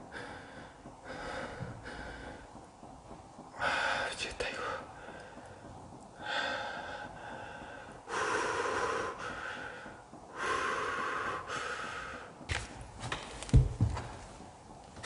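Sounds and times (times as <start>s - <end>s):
person breathing heavily: 0.0s - 2.8s, 3.4s - 12.5s.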